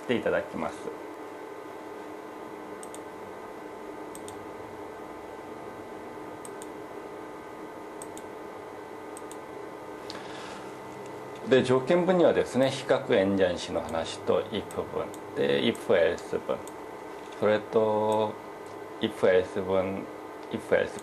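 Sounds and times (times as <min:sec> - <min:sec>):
steady room hum: 0:00.0 - 0:21.0
computer mouse clicks: 0:02.8 - 0:03.1, 0:04.1 - 0:04.4, 0:06.4 - 0:06.7, 0:08.0 - 0:08.3, 0:09.2 - 0:09.4.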